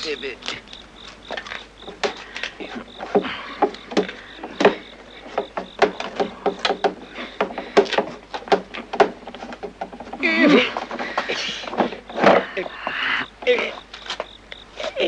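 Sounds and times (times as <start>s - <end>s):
film soundtrack hum and hiss: 0.0s - 15.0s
sharp knocks and clatters: 1.3s - 13.1s.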